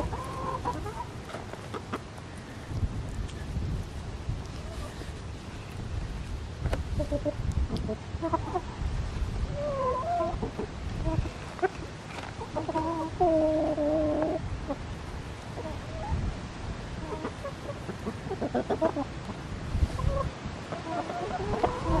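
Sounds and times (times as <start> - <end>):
hens clucking: 0.0 - 2.6, 6.6 - 8.8, 9.5 - 14.8, 15.4 - 16.3, 16.9 - 22.0.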